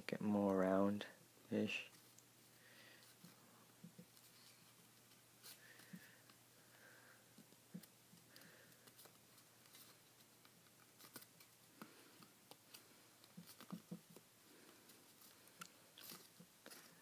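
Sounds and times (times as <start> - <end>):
paper crinkling and rustling: 7.7 - 17.0.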